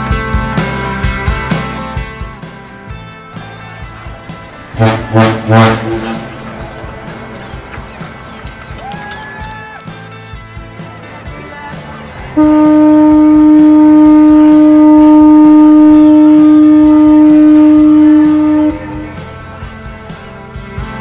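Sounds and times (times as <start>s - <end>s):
background music: 0.0s - 21.0s
ship's horn blast: 3.9s - 7.2s, 12.4s - 19.4s.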